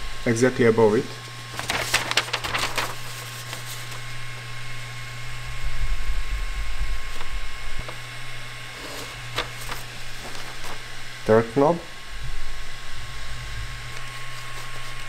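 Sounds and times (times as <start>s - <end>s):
low electrical hum: 0.0s - 15.0s
paper rustling: 1.0s - 4.2s, 7.1s - 8.1s, 8.7s - 11.0s, 13.8s - 15.0s
print head moving rumble: 1.5s - 15.0s.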